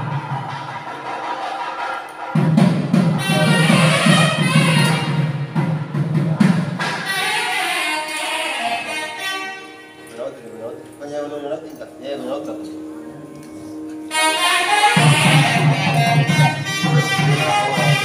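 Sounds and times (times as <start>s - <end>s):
drum beating steadily: 0.0s - 9.5s, 14.1s - 18.0s
reedy wavering wind melody: 7.1s - 18.0s.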